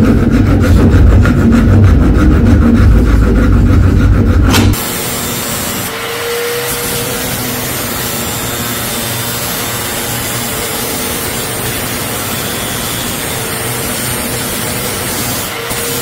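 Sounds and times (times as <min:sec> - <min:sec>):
power tool hissing: 0:04.5 - 0:16.0.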